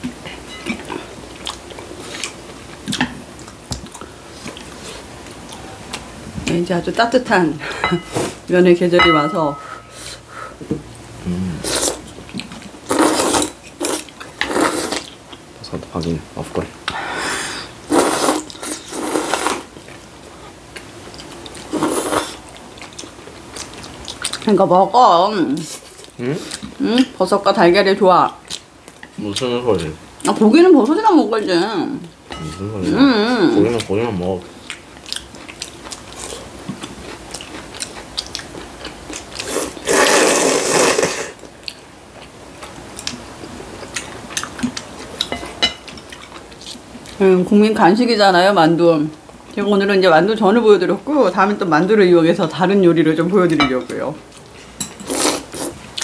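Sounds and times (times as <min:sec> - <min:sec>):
person slurping noodles: 0:11.2 - 0:12.0, 0:39.4 - 0:41.4
chewing: 0:20.7 - 0:24.5, 0:34.6 - 0:40.2, 0:43.8 - 0:47.2.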